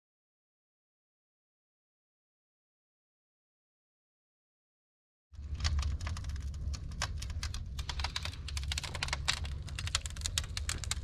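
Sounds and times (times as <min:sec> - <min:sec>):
steady low rumble: 0:05.4 - 0:11.0
wood fire crackling and popping: 0:05.4 - 0:11.0.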